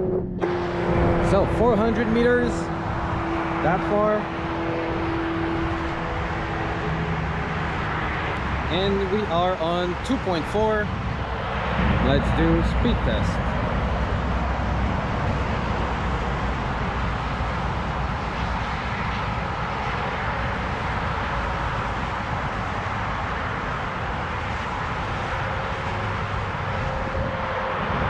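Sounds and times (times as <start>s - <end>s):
wind buffeting microphone: 10.6s - 28.0s.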